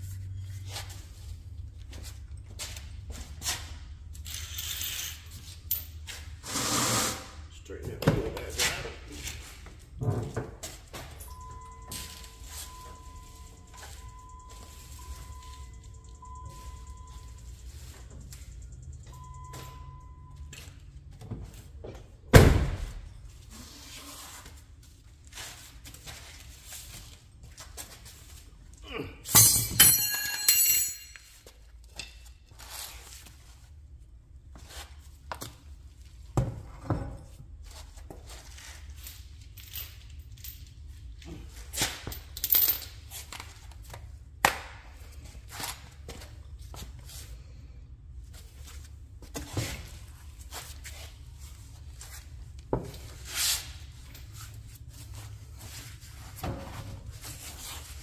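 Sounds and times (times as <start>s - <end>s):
hand tools knocking and clinking: 29.3s - 32.2s.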